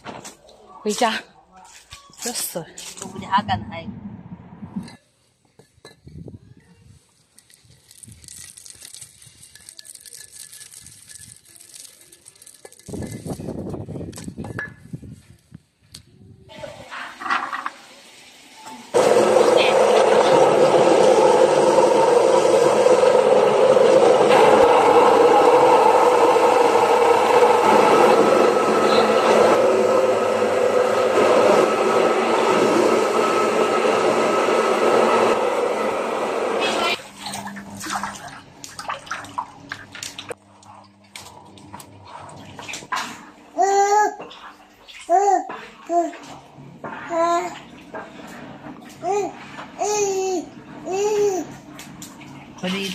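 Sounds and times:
bricks crunching nut shells: 0:07.4 - 0:13.3
electric grinding mill running: 0:18.9 - 0:37.0.

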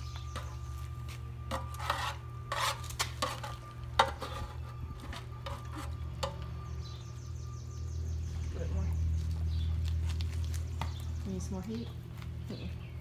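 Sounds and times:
utensil scraping metal pan: 0:01.5 - 0:06.4.

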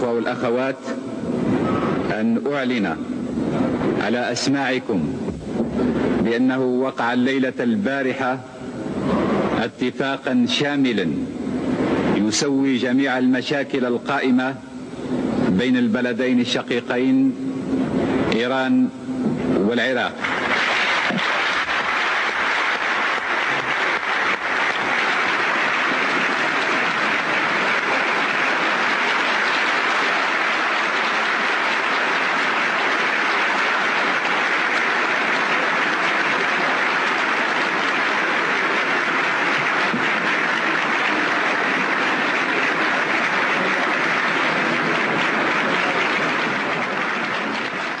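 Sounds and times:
crowd applauding: 0:00.0 - 0:02.8, 0:19.8 - 0:48.0.

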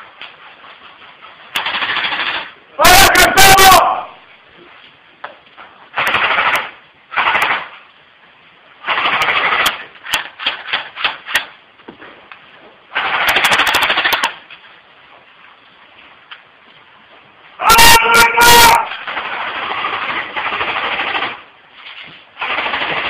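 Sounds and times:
automatic gunfire bursts: 0:01.6 - 0:02.6, 0:05.9 - 0:07.8, 0:08.8 - 0:11.5, 0:12.9 - 0:14.4, 0:18.6 - 0:21.5, 0:22.4 - 0:23.0.

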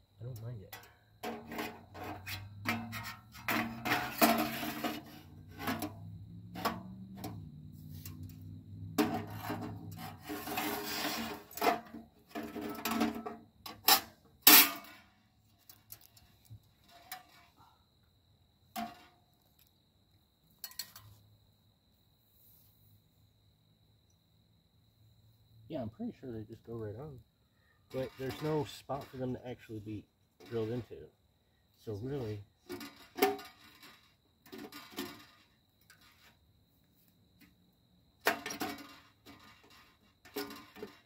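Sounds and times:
metal parts scraping and rattling: 0:00.7 - 0:15.0, 0:15.6 - 0:17.6, 0:27.9 - 0:29.4, 0:30.4 - 0:31.0, 0:32.1 - 0:36.3, 0:38.2 - 0:41.0
sharp metal clanks: 0:13.8 - 0:15.0.

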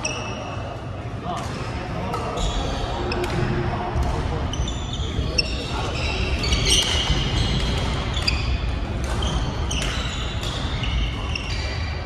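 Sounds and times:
shoes squeaking on floor: 0:00.0 - 0:00.6, 0:04.5 - 0:12.0
rackets hitting shuttlecock: 0:01.3 - 0:04.4, 0:05.3 - 0:11.8.

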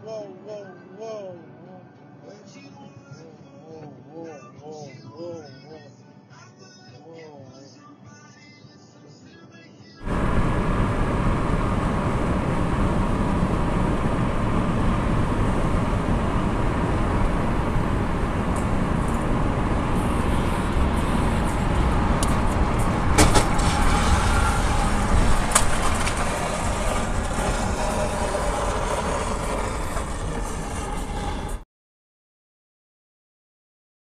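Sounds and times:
tyre and wind road noise: 0:10.0 - 0:31.6.

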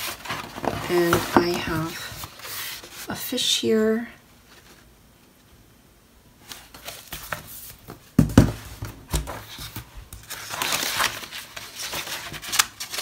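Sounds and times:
paper pages rustling: 0:00.0 - 0:03.2, 0:06.4 - 0:13.0
book thumping: 0:07.9 - 0:09.9.

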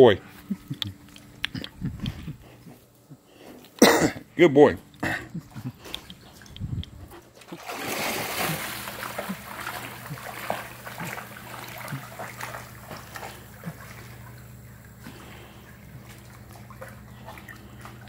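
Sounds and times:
water sloshing around swimming dog: 0:04.9 - 0:18.0
dog splashing into pool: 0:07.3 - 0:18.0.

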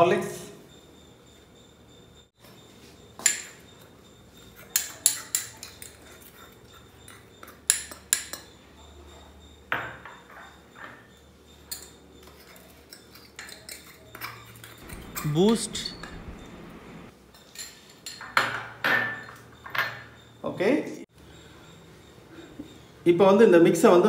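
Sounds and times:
spoon clinking against glass and metal: 0:03.1 - 0:20.4.

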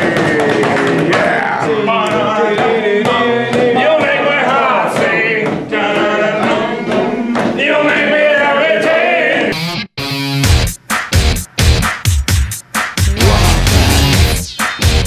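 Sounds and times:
men singing together: 0:00.0 - 0:09.5, 0:13.1 - 0:14.4.

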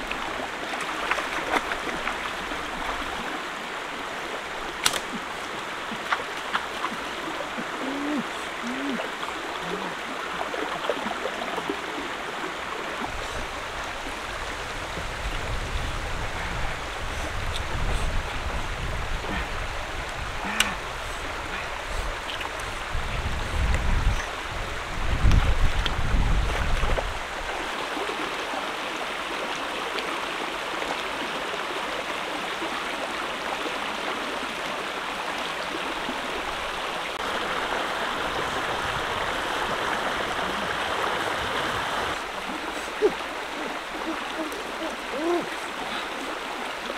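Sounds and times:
stream running over rocks: 0:00.0 - 0:46.9.

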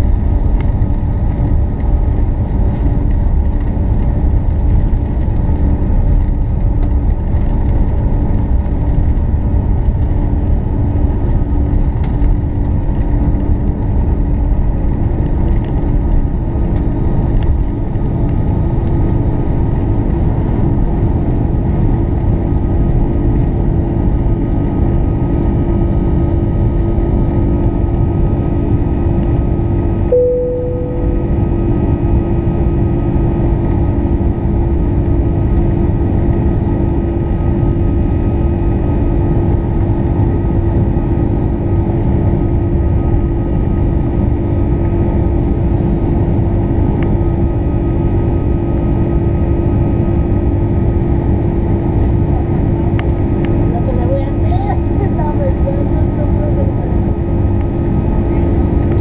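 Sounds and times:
jet engines in cabin: 0:00.0 - 0:59.0
short cabin tone: 0:30.1 - 0:32.4.

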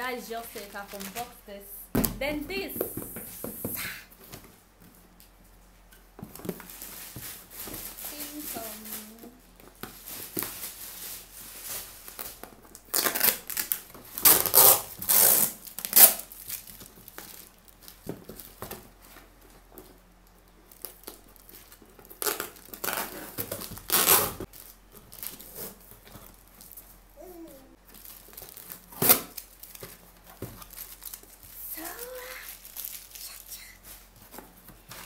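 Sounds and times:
cardboard rustling: 0:06.2 - 0:13.0.

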